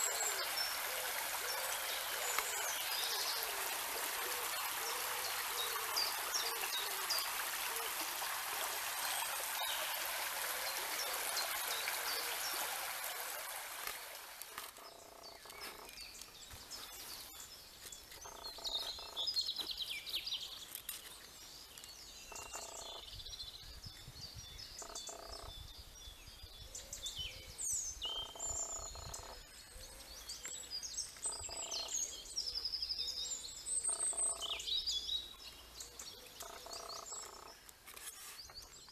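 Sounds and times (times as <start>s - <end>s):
stream running over stones: 0.0s - 26.1s, 27.8s - 38.9s
birds singing and calling: 14.6s - 38.9s.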